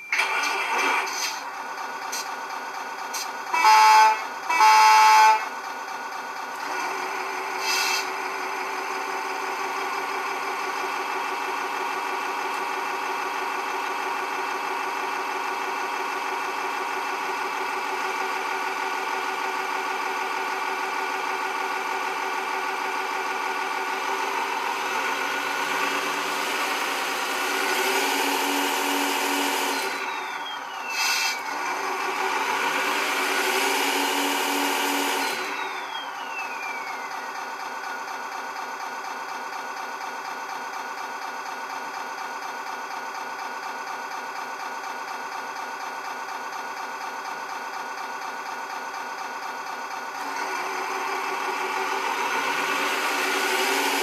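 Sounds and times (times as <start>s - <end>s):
truck horn blasts: 3.5s - 5.5s
simulated engine idling: 5.3s - 27.7s, 35.4s - 53.8s.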